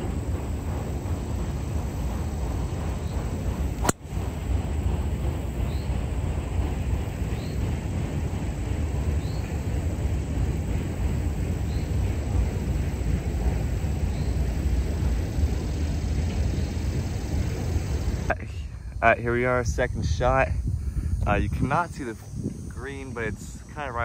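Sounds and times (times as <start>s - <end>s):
steady low rumble: 0.0s - 24.0s
golf club striking ball: 3.8s - 4.1s.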